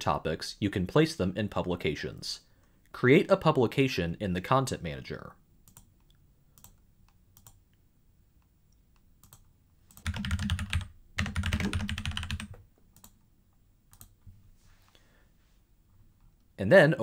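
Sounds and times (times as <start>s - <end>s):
computer keyboard typing: 9.2s - 13.2s.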